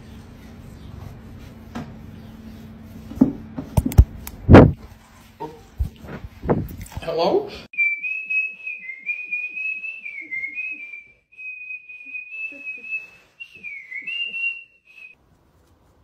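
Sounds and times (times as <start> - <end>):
woman whistling a tune: 7.8 - 15.2.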